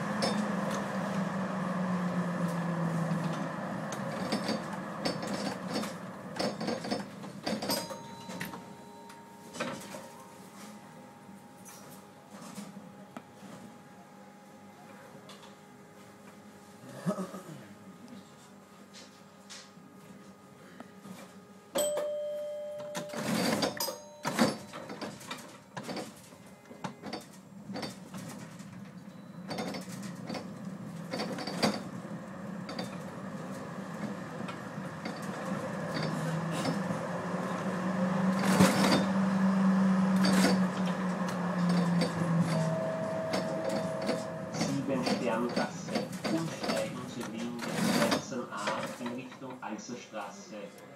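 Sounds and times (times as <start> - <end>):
tram wheels clicking and knocking: 0.0 - 10.0, 22.8 - 49.6
low hum: 30.1 - 46.6
steady beep: 42.5 - 45.0.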